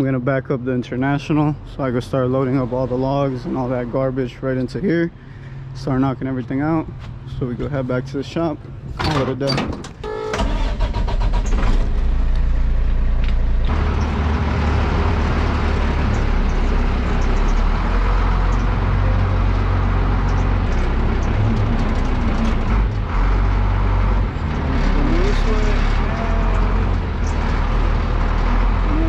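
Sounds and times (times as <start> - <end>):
truck engine running: 10.4 - 29.0.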